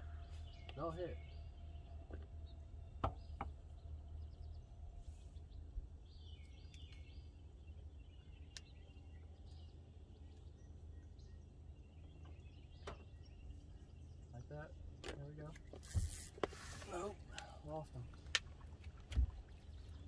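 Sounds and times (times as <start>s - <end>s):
low steady rumble: 0.0s - 15.5s
bird chirping: 0.0s - 16.8s.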